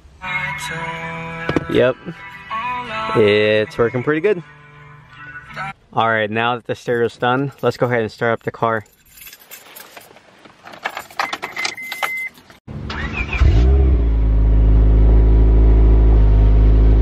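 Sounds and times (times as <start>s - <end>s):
keys jangling: 7.2s - 12.5s
car engine cranking: 9.1s - 14.0s.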